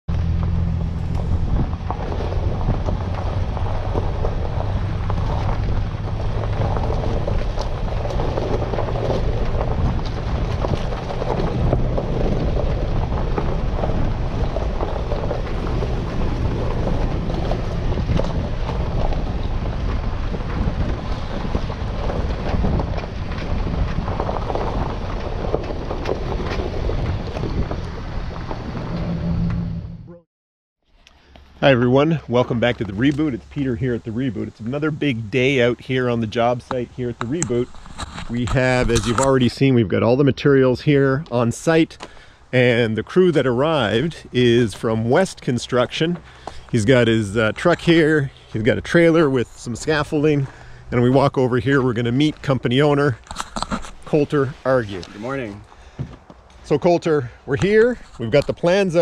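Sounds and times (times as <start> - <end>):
gravel clicking under tyres: 0.1 - 29.7, 30.9 - 59.0
vehicle engine and road hum: 0.1 - 30.2, 30.9 - 59.0
wind buffeting microphone: 0.3 - 29.8.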